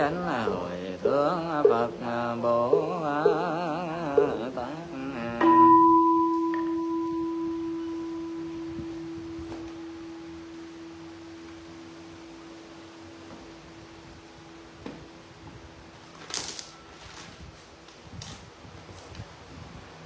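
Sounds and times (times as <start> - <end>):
bowl bell ringing: 5.4 - 12.2.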